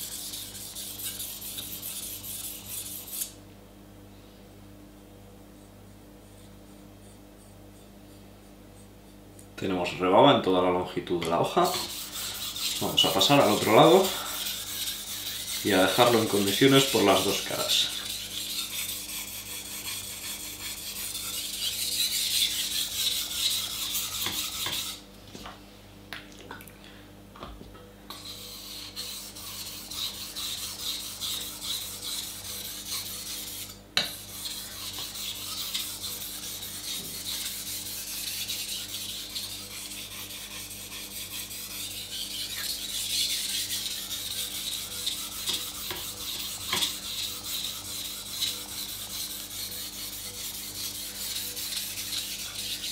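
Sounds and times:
knife scraping on whetstone: 0:00.0 - 0:03.4, 0:11.6 - 0:25.0, 0:28.1 - 0:52.9.

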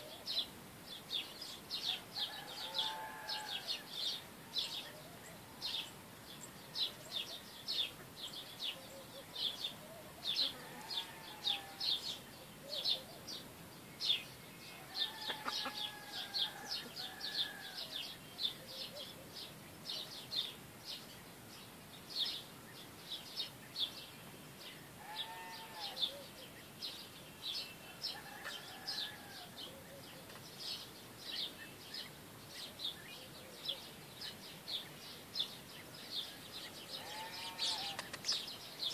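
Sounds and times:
small birds chirping: 0:00.0 - 0:38.9
chickens calling: 0:14.7 - 0:17.9.

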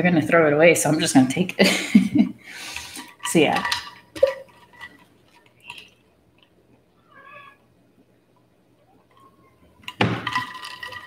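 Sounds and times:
high-pitched animal call: 0:07.0 - 0:07.6.

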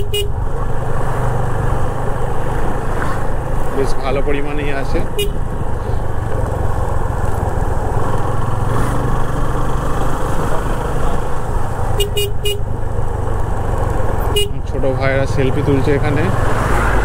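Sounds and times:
horn toots: 0:00.0 - 0:00.4, 0:05.1 - 0:05.5, 0:12.0 - 0:12.8, 0:14.3 - 0:14.8
motorcycle engine cruising: 0:00.0 - 0:17.0.

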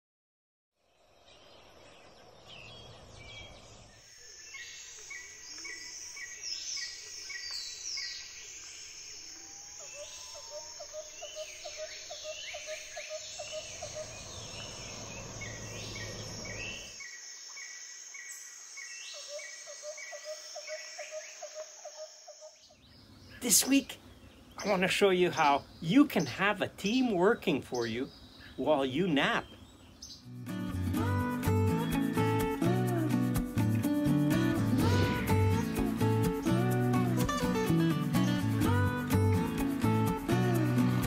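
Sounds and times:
songbirds singing: 0:00.8 - 0:41.0
low rumble: 0:13.6 - 0:16.9, 0:34.5 - 0:36.2
fast low pulsed trill: 0:33.4 - 0:37.1.

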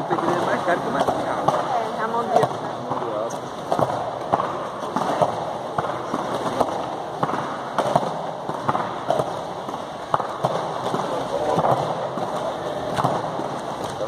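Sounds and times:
noisy background: 0:00.0 - 0:14.0
body slapping foam mat: 0:03.6 - 0:14.0.

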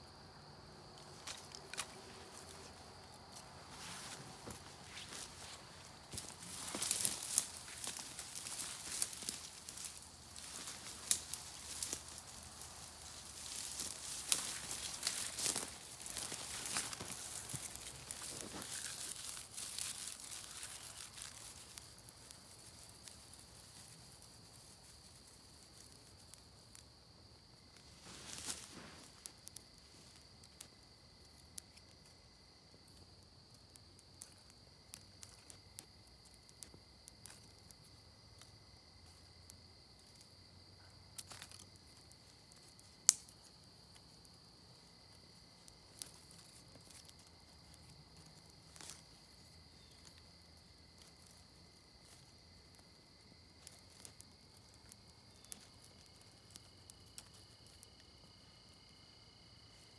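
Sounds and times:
high insect buzz: 0:00.0 - 0:25.4
twig fire crackling: 0:00.0 - 0:59.9
dry sticks clicking and snapping: 0:01.0 - 0:03.5, 0:04.5 - 0:26.9, 0:41.1 - 0:44.0.

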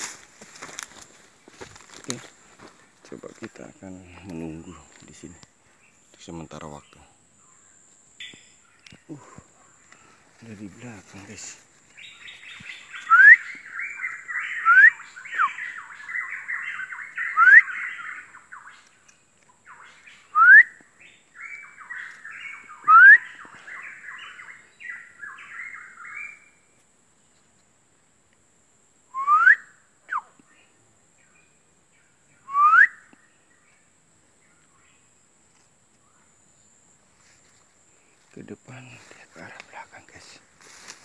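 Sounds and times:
scratchy chattering bird song: 0:02.0 - 0:26.6, 0:38.0 - 0:41.0
bird upward sweeping whistles: 0:13.0 - 0:15.6, 0:16.2 - 0:18.0, 0:20.3 - 0:20.8, 0:22.7 - 0:23.4, 0:29.1 - 0:30.3, 0:32.4 - 0:33.1.

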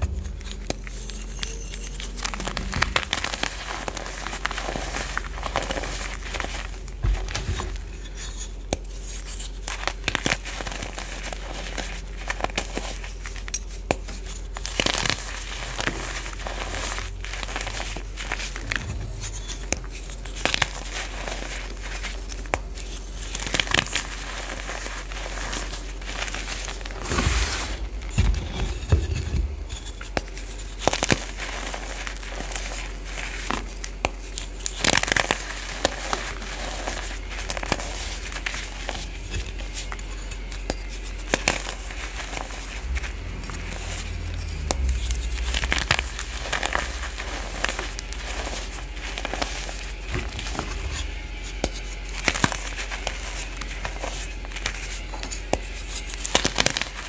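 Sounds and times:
chalk crunching by hand: 0:00.0 - 0:57.0
faint low hum: 0:13.5 - 0:23.3, 0:24.7 - 0:33.4, 0:34.6 - 0:53.9.

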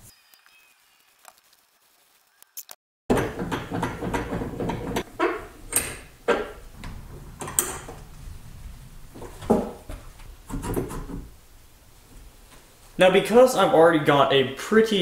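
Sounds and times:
clunks and knocks in a vise: 0:03.1 - 0:08.1, 0:09.3 - 0:11.3.

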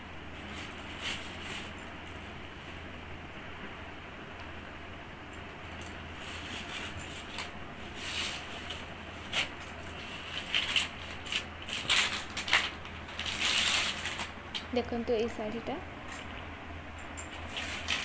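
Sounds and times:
cloth and wrapping rustling: 0:00.4 - 0:02.9, 0:05.9 - 0:14.7, 0:17.2 - 0:18.0.

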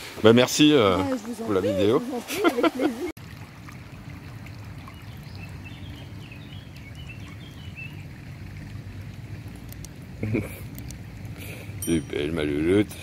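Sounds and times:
stream water running: 0:00.0 - 0:13.0.

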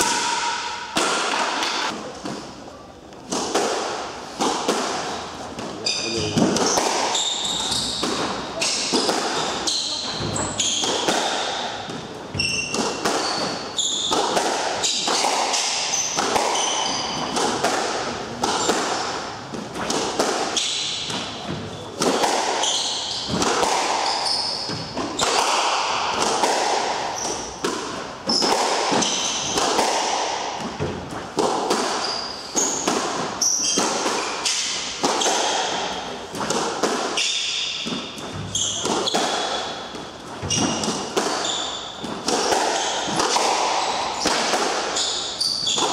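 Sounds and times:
shoes squeaking on wooden floor: 0:05.1 - 0:11.1, 0:12.0 - 0:17.4, 0:24.0 - 0:25.4, 0:31.0 - 0:34.6, 0:37.2 - 0:44.3, 0:44.9 - 0:45.9
squash ball knocks: 0:32.6 - 0:45.0.

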